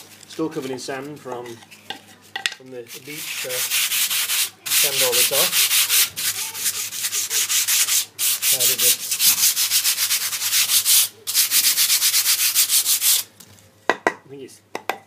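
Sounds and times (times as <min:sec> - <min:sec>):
sandpaper rasping on wood: 0:02.9 - 0:13.3.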